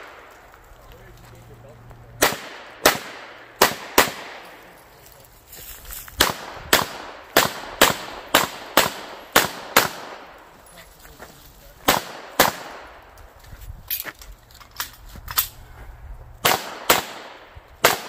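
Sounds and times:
pistol shots with echo: 2.2 - 4.6, 6.2 - 10.4, 11.8 - 13.0, 16.4 - 18.0.

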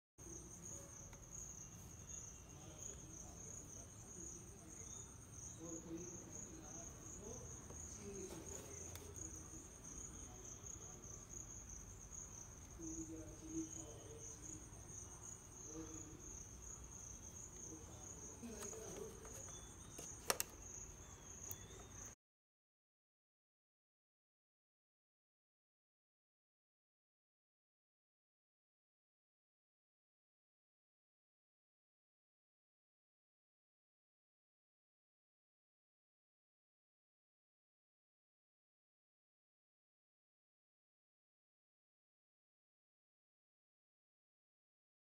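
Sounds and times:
plastic box crinkling and tapping: 18.4 - 20.6
packaging sharp clicks: 18.5 - 20.6.

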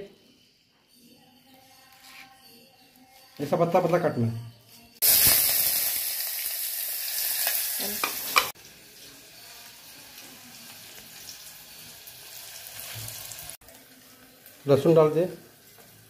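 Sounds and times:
hot oil sizzling: 5.0 - 16.0.

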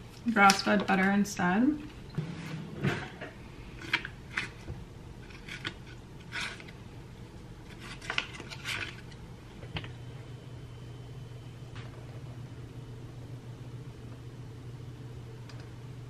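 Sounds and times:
low steady hum: 0.0 - 16.0
food wrapping rustling: 7.6 - 9.2.

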